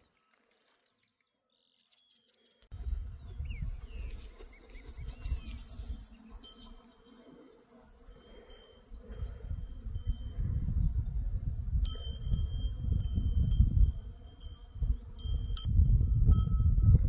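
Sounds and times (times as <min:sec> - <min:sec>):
wind rumbling on microphone: 0:02.7 - 0:17.0.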